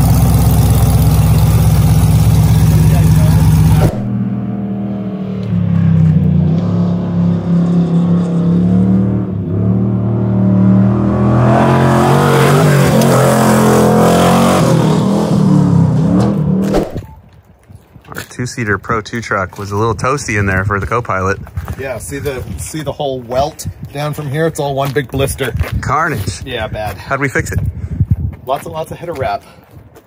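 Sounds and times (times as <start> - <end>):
race truck engine revving: 0.0 - 16.9
rush of noise: 2.6 - 4.4.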